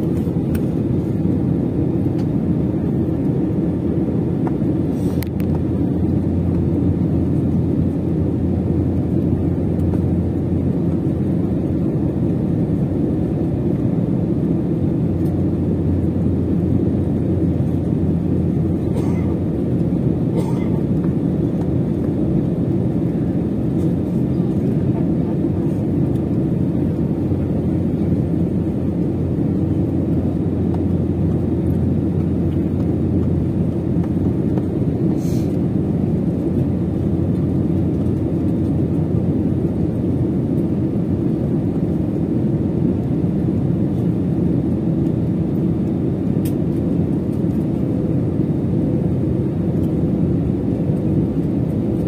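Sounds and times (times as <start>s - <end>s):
airliner engines droning: 0.0s - 52.0s
rushing air: 4.8s - 5.5s.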